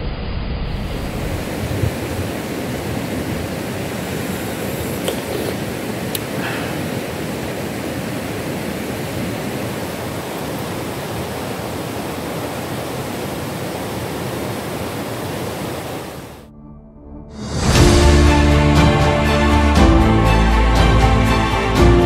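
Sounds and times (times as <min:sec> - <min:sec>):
river rapids rushing over rocks: 0:01.4 - 0:16.4.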